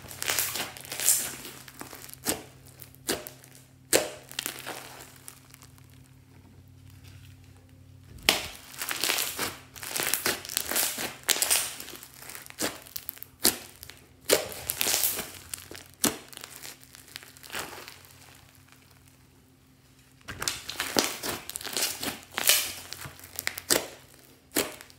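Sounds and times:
slime crackling and popping: 0.0 - 24.9.

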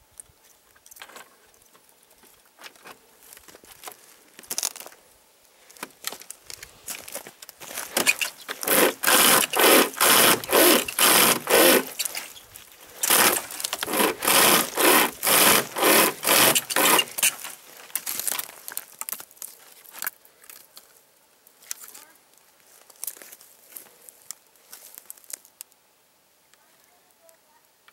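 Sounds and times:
saw chain rasping through log: 8.0 - 12.3, 13.0 - 17.6.

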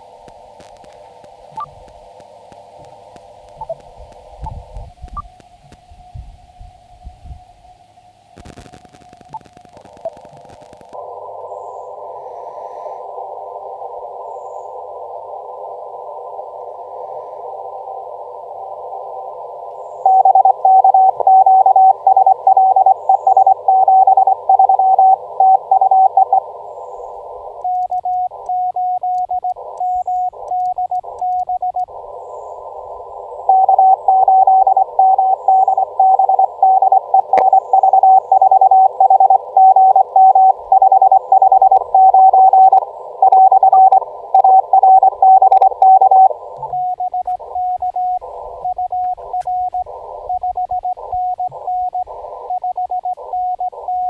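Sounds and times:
quieter morse sidetone: 0.0 - 54.0
receiver hiss: 0.0 - 54.0
morse code tone: 20.0 - 26.4, 27.6 - 31.9, 33.5 - 54.0.

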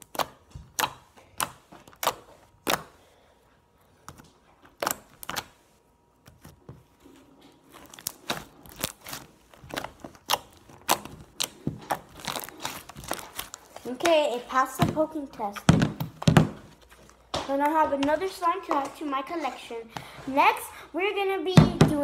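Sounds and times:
fingers poking sticky slime: 0.0 - 3.0.

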